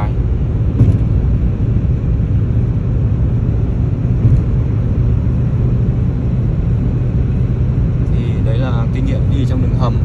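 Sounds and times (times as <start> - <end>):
car cabin road noise: 0.0 - 10.0
car bump: 0.6 - 1.7, 4.0 - 5.1.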